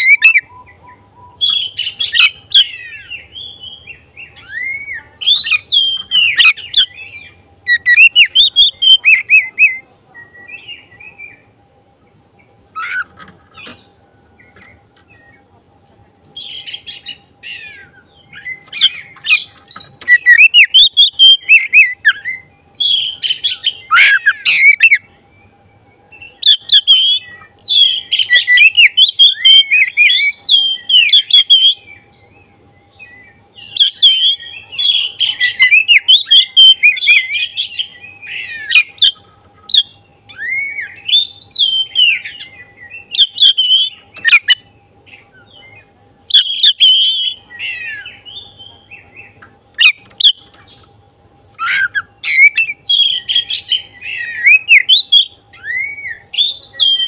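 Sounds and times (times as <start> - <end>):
bird whistled song: 0.0 - 11.6, 12.4 - 15.4, 16.2 - 50.9, 51.5 - 57.0.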